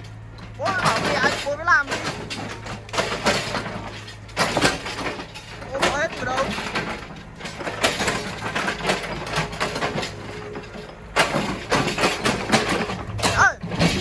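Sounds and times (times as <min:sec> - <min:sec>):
debris clattering: 0:00.0 - 0:14.0
diesel engine under load: 0:00.0 - 0:14.0
bucket scraping through rubble: 0:11.3 - 0:14.0.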